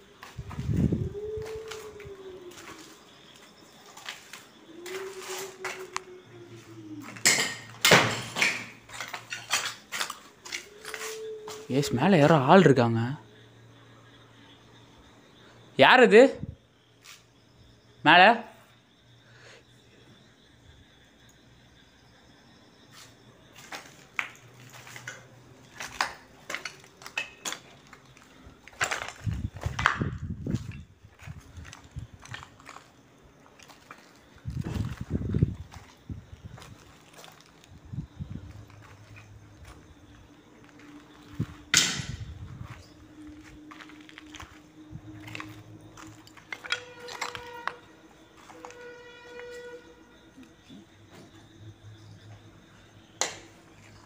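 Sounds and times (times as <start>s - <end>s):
footsteps crunching over rubble: 0.0s - 6.0s, 7.0s - 11.7s, 23.6s - 48.8s.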